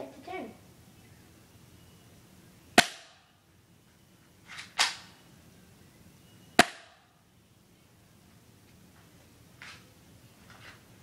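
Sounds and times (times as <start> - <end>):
airsoft pistol shots: 2.8 - 3.3, 6.6 - 7.0.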